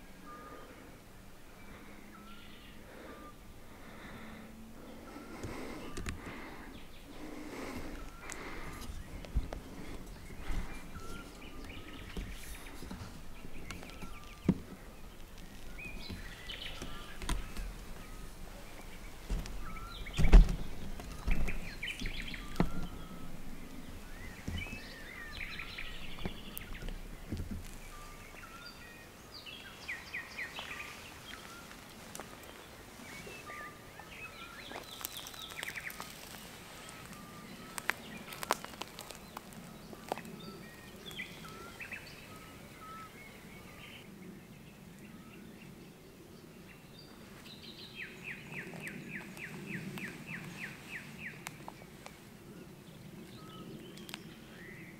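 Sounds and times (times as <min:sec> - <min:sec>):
wild birds singing: 0:00.0 - 0:54.9
footsteps: 0:07.2 - 0:28.0.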